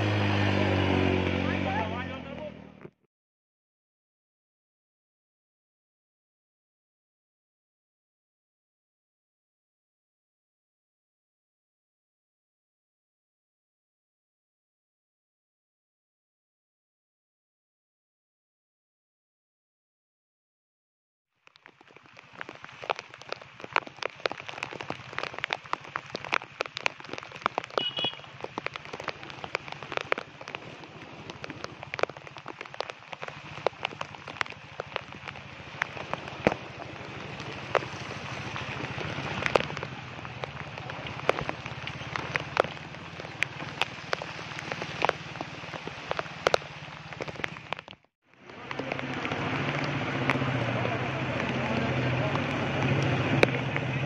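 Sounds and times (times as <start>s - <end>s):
heavy rain falling: 0.0s - 2.8s, 21.5s - 54.0s
raindrops tapping close: 21.4s - 54.0s.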